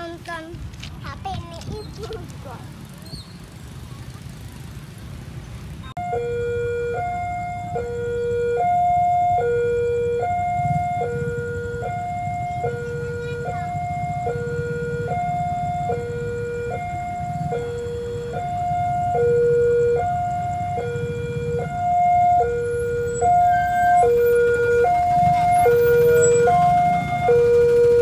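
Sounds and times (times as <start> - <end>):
two-tone crossing alarm: 6.0 - 28.0.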